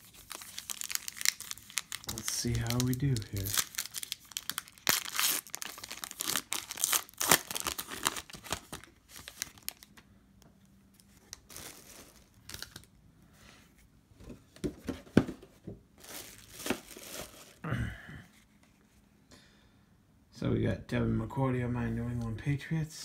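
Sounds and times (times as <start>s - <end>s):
foil wrapper tearing and crinkling: 0.0s - 9.9s, 11.3s - 12.9s.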